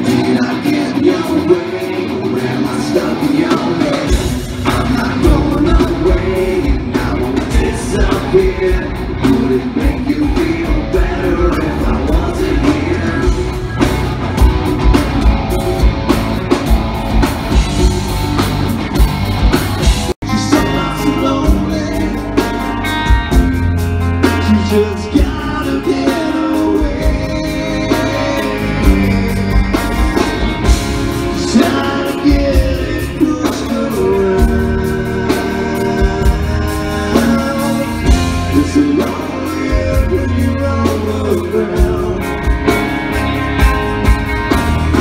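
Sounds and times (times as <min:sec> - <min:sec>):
rock song with singing: 0:00.0 - 0:45.0.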